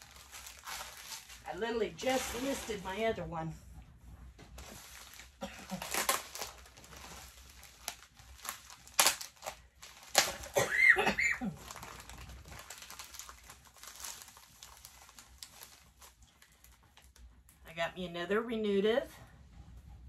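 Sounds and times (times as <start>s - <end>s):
plastic mailer crinkling: 0.0s - 3.2s, 4.6s - 17.2s
sharp plastic crackle: 0.0s - 3.2s, 4.5s - 17.6s.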